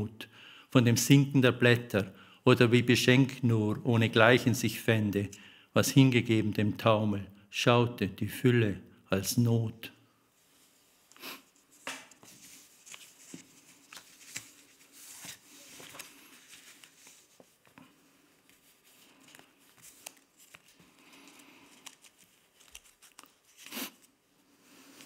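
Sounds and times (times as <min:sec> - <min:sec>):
paper rustling: 0:11.6 - 0:24.2.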